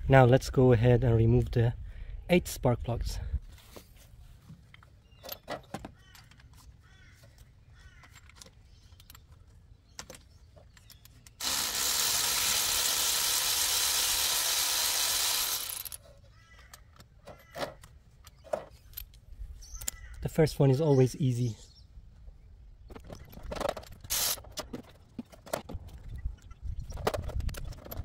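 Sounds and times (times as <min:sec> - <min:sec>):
cordless electric ratchet running: 0:11.4 - 0:16.0, 0:24.1 - 0:24.4.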